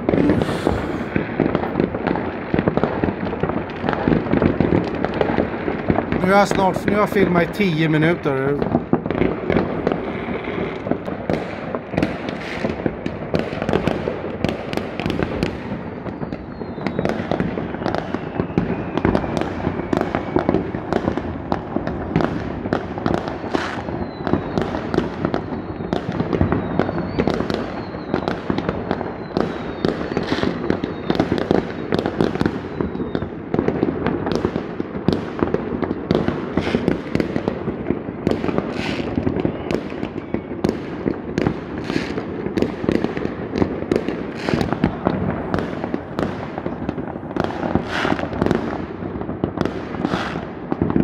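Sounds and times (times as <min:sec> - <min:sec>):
fireworks bangs and crackles: 0:00.0 - 0:51.0
firework whistles falling in pitch: 0:16.1 - 0:20.8, 0:23.3 - 0:33.3, 0:38.6 - 0:40.7, 0:44.3 - 0:45.0, 0:47.7 - 0:48.4.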